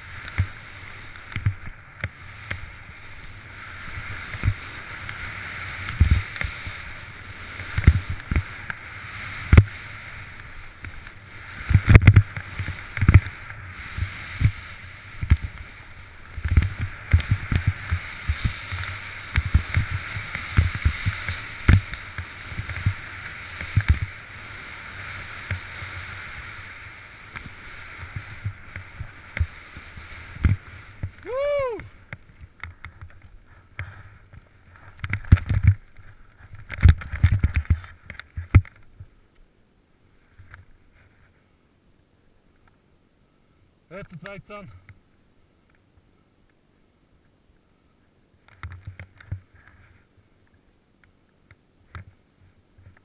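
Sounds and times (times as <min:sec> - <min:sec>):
snowboard hissing through snow: 0:00.0 - 0:01.3, 0:02.2 - 0:31.8.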